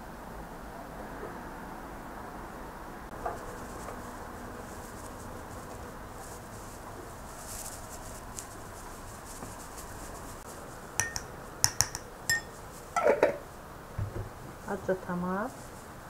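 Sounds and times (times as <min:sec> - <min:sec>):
steady low hiss: 0:01.6 - 0:16.0
metal spoon clinking ceramic bowl: 0:11.0 - 0:13.2
spoon scraping bowl: 0:11.0 - 0:13.2.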